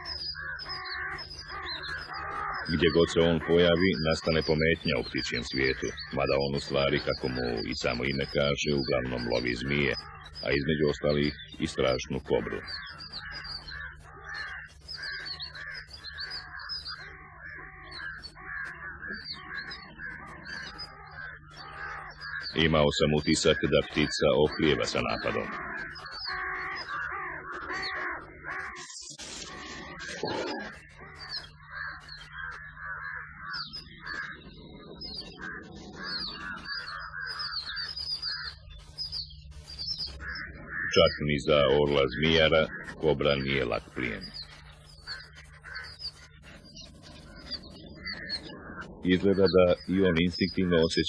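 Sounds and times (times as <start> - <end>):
crow-like bird calls: 0.0 - 51.0.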